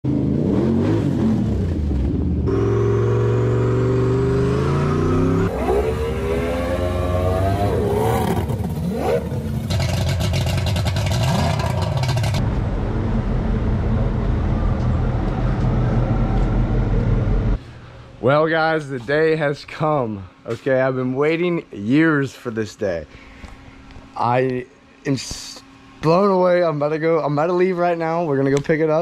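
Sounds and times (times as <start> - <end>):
engine revving: 0.0 - 17.6
engine humming: 0.0 - 17.8
engine low rumble: 0.0 - 18.2
engine rattling: 7.9 - 17.6.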